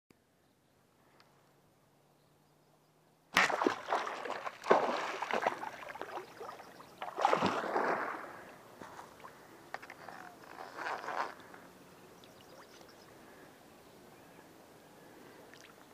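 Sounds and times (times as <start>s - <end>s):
water splashing and sloshing: 3.4s - 11.4s.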